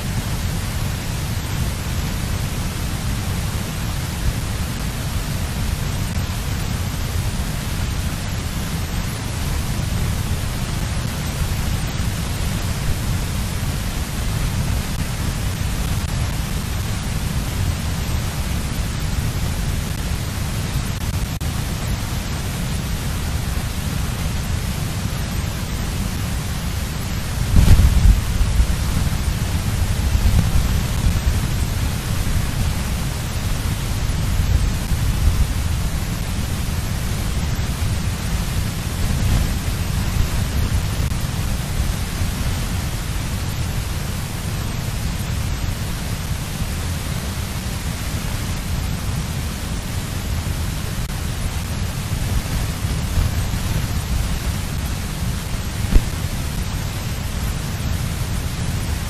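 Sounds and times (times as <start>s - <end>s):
wind buffeting microphone: 27.2s - 42.8s.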